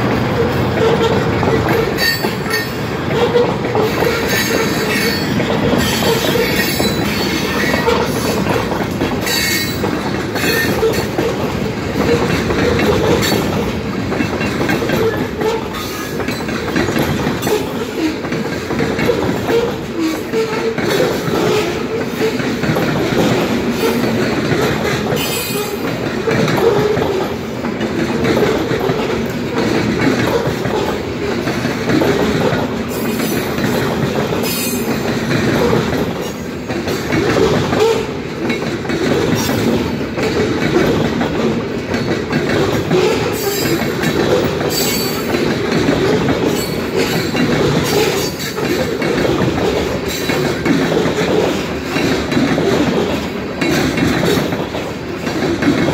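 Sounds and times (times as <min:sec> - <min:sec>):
train wheels rumbling on rails: 0:00.0 - 0:55.9.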